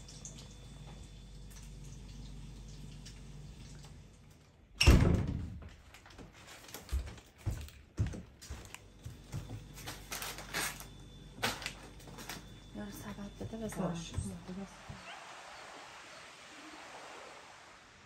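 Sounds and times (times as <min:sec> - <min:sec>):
wooden door thudding: 0:04.8 - 0:05.8
baskets and paper bags rustling: 0:05.8 - 0:14.6.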